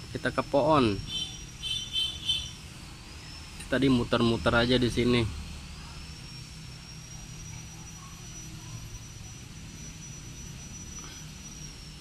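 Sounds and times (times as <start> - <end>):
insect whining: 0.0 - 12.0.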